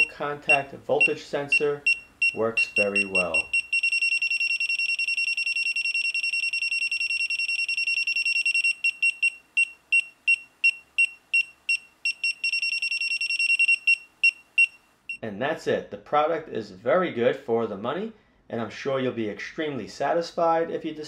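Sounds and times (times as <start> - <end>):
high-pitched voltage sensor beeps: 0.5 - 14.8.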